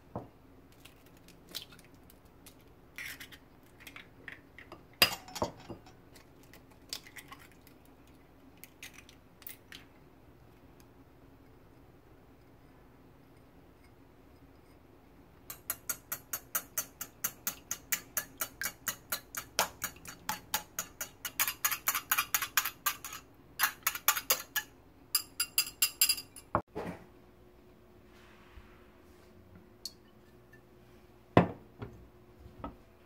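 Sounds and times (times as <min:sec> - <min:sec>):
wire whisk beating eggs in bowl: 0:15.5 - 0:26.2.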